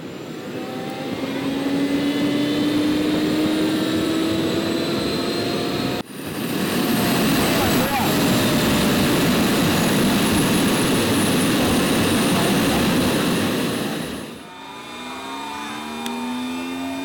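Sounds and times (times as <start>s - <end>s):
jet-like engine rush: 0.0s - 17.0s
engine tones gliding: 6.8s - 17.0s.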